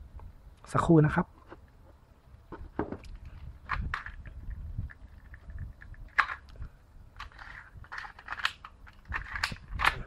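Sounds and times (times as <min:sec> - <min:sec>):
hard plastic clicking and rattling: 0:07.2 - 0:10.0.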